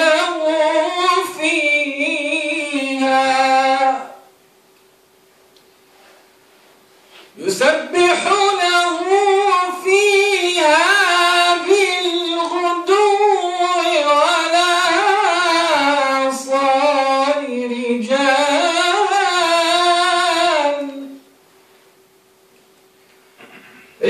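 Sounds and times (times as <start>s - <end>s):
man chanting recitation: 0.0s - 4.2s, 7.4s - 21.2s.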